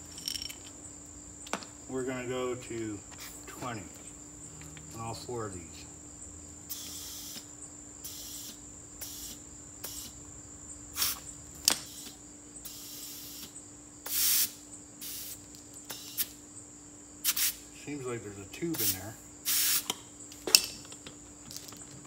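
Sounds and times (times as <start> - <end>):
air chuck hissing: 6.7 - 10.2, 11.0 - 16.3, 18.8 - 20.0.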